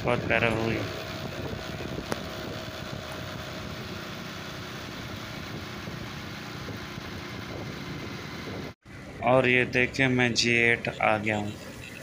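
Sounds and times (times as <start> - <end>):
wind noise on microphone: 0.0 - 4.1, 4.7 - 9.2
motorcycle engine running: 0.0 - 8.8.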